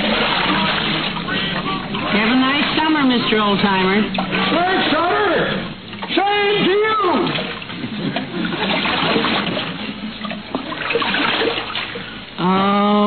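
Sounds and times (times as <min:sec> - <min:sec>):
water splashing from paddling: 0:00.0 - 0:12.3.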